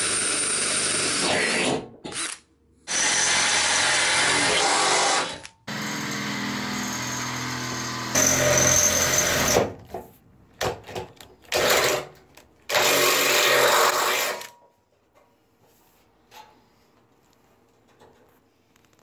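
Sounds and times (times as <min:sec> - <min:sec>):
cordless drill boring through metal: 0:00.0 - 0:09.7.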